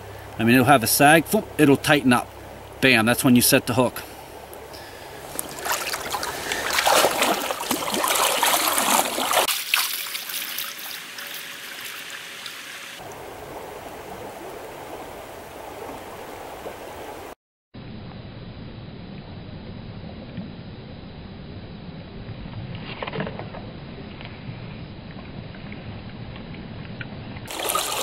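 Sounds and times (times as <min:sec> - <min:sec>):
stream water splashing: 0:00.1 - 0:17.4, 0:27.5 - 0:28.0.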